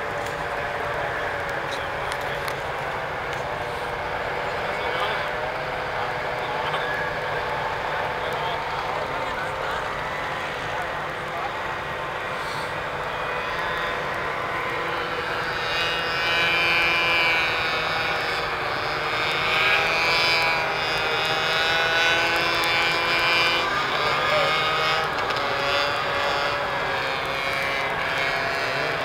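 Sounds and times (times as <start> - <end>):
snowmobile engines droning: 0.0 - 29.0.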